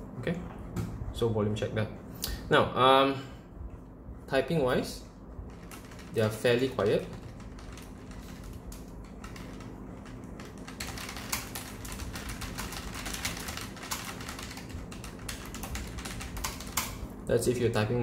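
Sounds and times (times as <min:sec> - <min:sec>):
mechanical keyboard typing: 0:05.5 - 0:17.0.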